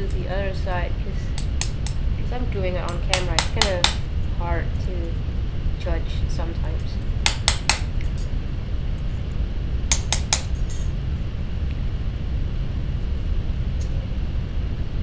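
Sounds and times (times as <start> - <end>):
low hum: 0.0 - 15.0
hammer tapping metal punch: 3.1 - 4.0, 7.2 - 7.9, 9.9 - 10.8.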